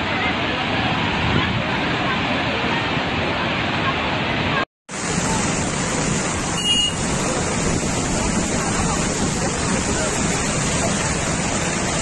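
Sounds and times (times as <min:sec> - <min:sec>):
water rushing: 0:00.0 - 0:12.0.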